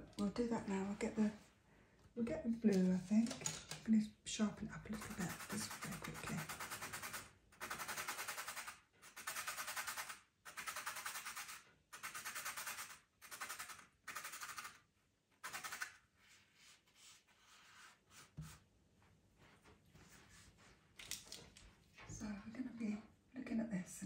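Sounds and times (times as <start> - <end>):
pencil sharpening scrapes: 5.0 - 14.8, 15.4 - 16.0.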